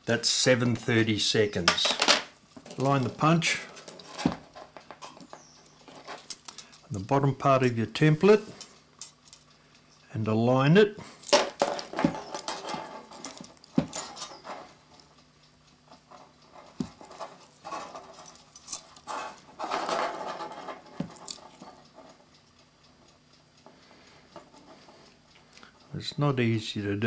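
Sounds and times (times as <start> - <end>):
metal spring clicking and scraping: 11.2 - 14.8, 16.1 - 22.2.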